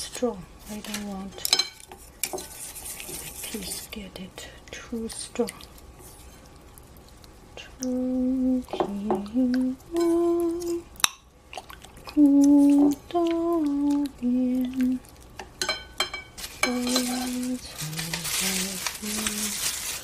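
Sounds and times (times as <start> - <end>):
person humming a slow tune: 7.6 - 10.9, 12.1 - 15.0, 16.6 - 19.6
utensils clattering: 15.6 - 20.0.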